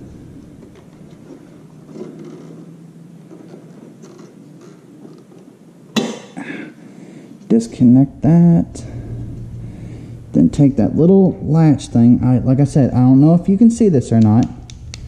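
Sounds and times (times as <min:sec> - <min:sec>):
hands scraping plastic parts: 0:00.4 - 0:05.5.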